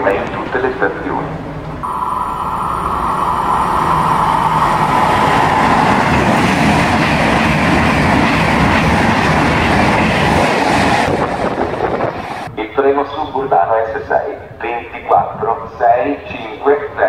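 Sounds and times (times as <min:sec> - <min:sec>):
high whine: 0:01.7 - 0:12.5
train wheels rushing on rails: 0:01.8 - 0:12.5.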